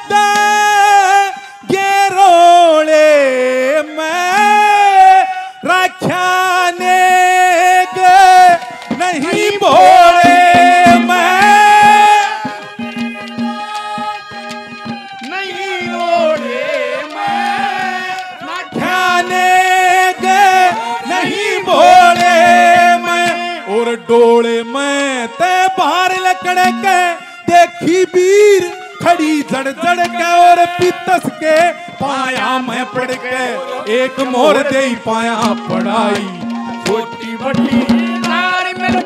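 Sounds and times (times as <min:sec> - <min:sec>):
man singing ornamented notes: 0:00.0 - 0:39.0
hand drum strokes: 0:34.0 - 0:39.0.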